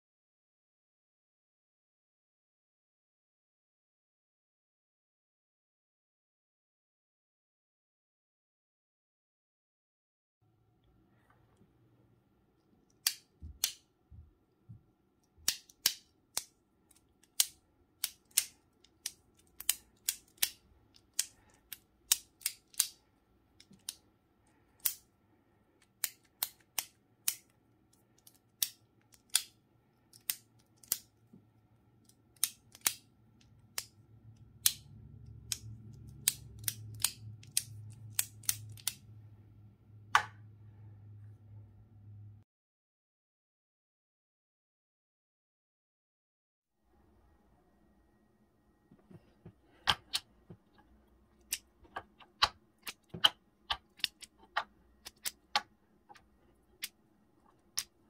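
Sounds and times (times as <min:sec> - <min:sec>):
low steady hum: 0:10.4 - 0:42.4
magnetic cube blocks clicking shut: 0:17.3 - 0:23.0.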